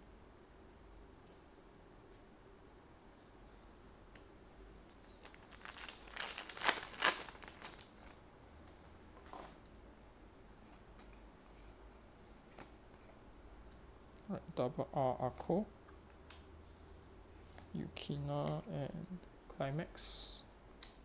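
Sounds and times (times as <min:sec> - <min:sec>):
cards rustling: 0:04.9 - 0:09.6
foil pack tearing and crinkling: 0:05.0 - 0:07.9.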